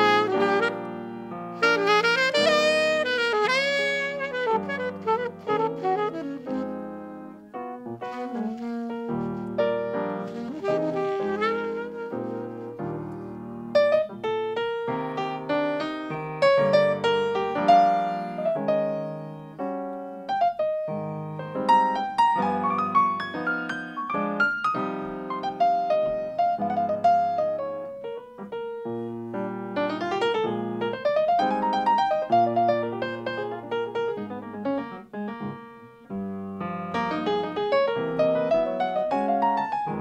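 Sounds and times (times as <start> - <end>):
held saxophone note: 0.0 - 1.0, 1.6 - 6.8, 8.0 - 13.0
jazz piano improvisation: 0.0 - 40.0.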